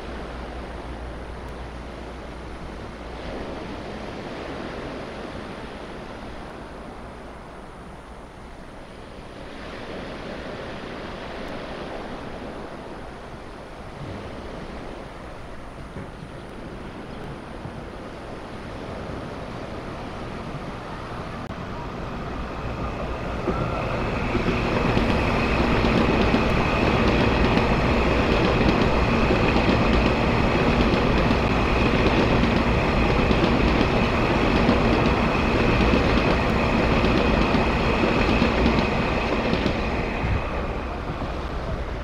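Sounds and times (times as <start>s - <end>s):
train high whine: 0.0s - 42.0s
train wheels on rails: 8.5s - 42.0s.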